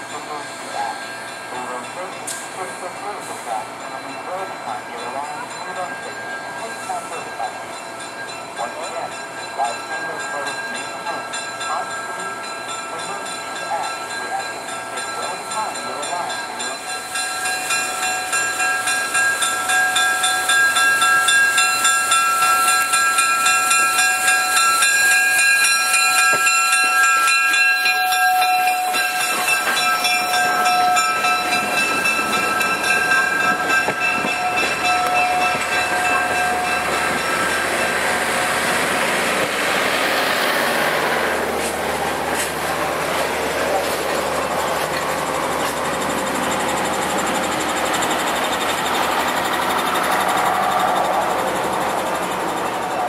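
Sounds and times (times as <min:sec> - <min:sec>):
high steady ringing tones: 0:00.0 - 0:53.0
steam train passing: 0:00.0 - 0:53.0.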